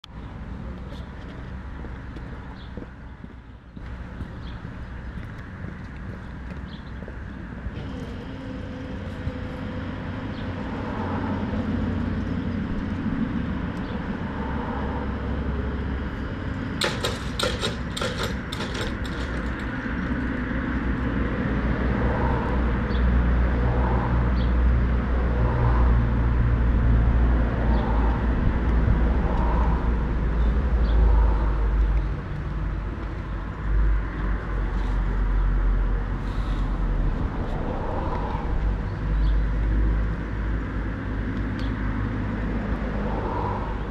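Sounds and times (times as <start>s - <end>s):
train low rumble: 0.0s - 43.9s
rattling clicks: 16.8s - 20.4s.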